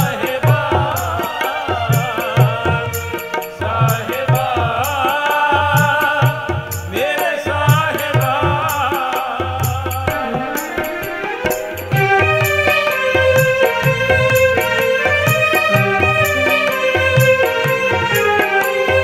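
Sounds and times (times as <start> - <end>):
harmonium: 0.0 - 19.0
man singing: 0.0 - 19.0
tabla beat: 0.0 - 19.0.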